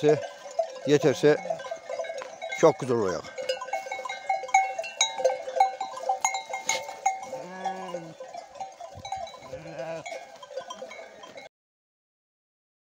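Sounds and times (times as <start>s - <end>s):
sheep bells clanking: 0.0s - 11.5s
sheep bleating: 6.7s - 8.4s, 9.3s - 11.3s.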